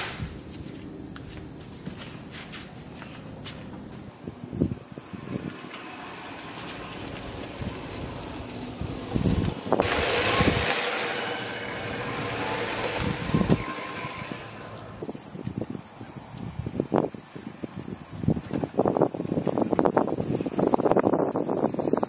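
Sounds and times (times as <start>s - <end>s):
utility cart motor humming: 2.9s - 15.6s
wind thumping on microphone: 7.2s - 14.3s, 15.0s - 22.0s.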